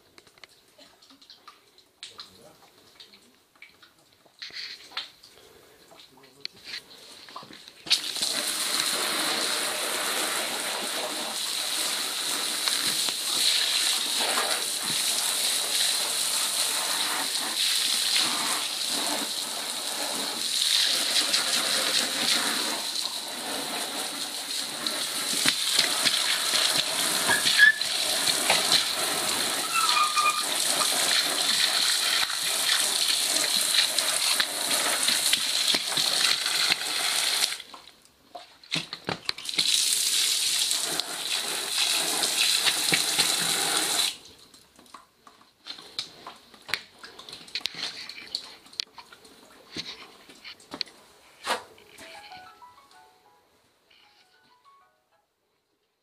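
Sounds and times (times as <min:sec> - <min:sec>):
water pouring into container: 0:07.9 - 0:37.7.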